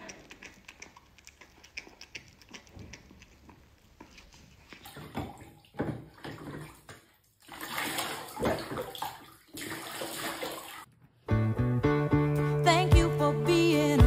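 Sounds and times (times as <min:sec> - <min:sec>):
music: 0:11.2 - 0:14.0.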